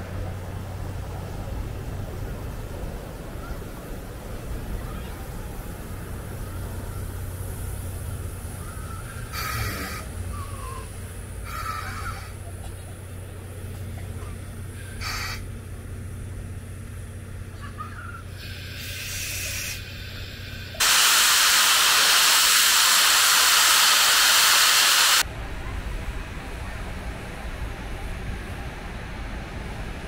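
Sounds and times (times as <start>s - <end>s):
low steady rumble: 0.0s - 20.8s
steam locomotive hissing steam: 3.2s - 13.0s, 14.5s - 16.0s, 18.2s - 25.3s.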